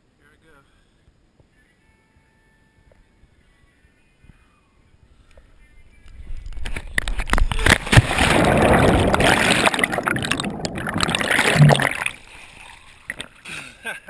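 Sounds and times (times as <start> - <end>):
body smacking into water: 7.0 - 12.2
underwater churning and bubbling: 7.4 - 13.3
wind rushing over microphone: 8.0 - 11.8.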